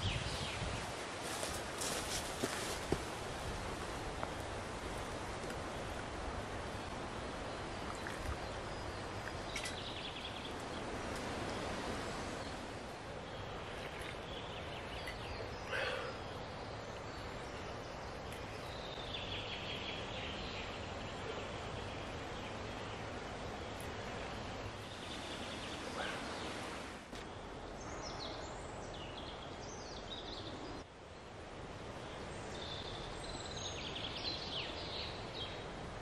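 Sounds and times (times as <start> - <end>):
steady background hiss: 0.0 - 36.0
faint bird calls: 13.4 - 16.6, 24.9 - 26.8.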